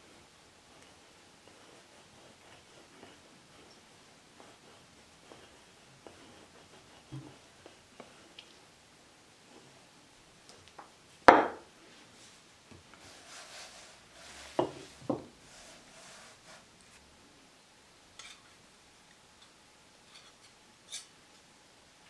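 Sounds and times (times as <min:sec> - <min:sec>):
rubbing of pin and dough: 0:00.0 - 0:08.5, 0:12.0 - 0:17.1
rolling pin knocking on worktop: 0:11.3 - 0:11.6, 0:14.6 - 0:15.3.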